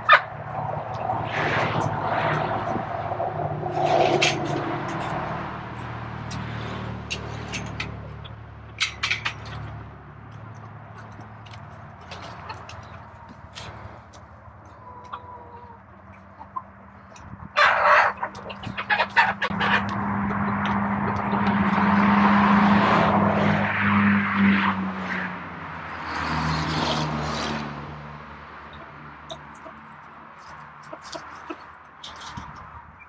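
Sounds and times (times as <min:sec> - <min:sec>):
chickens clucking: 0:06.3 - 0:22.9, 0:28.6 - 0:32.8.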